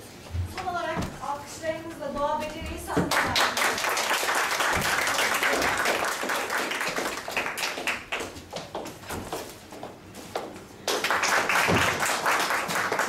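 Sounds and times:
audience applauding: 3.1 - 8.4, 10.9 - 13.0.

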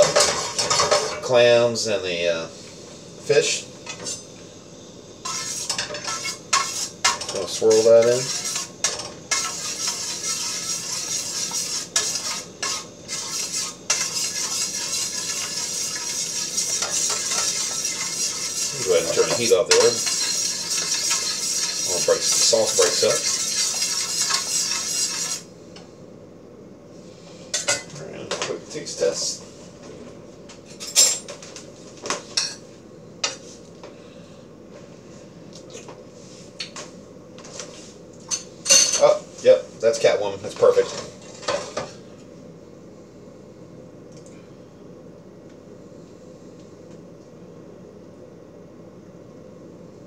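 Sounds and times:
metal spatula scraping a skillet: 0.0 - 1.2, 5.2 - 25.5
sauce sizzling: 5.2 - 7.1, 8.1 - 25.5.

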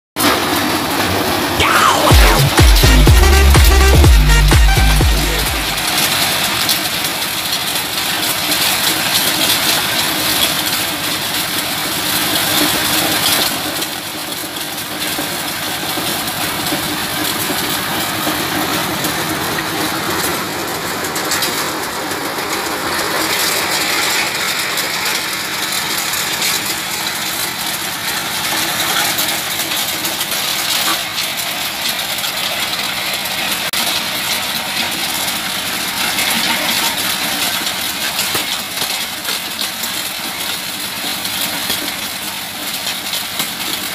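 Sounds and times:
diesel engine running under load: 0.6 - 38.8
machine grinding noise: 15.1 - 30.8.

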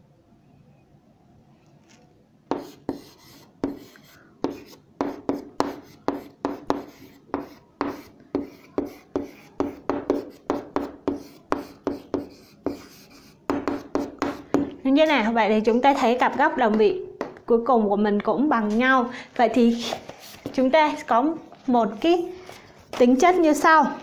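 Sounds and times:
pen writing strokes: 2.5 - 14.7.

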